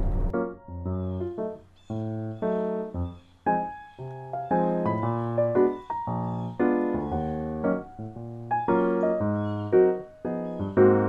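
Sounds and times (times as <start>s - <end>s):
low bass line: 0.0s - 0.7s
keyboard melody: 0.0s - 11.0s.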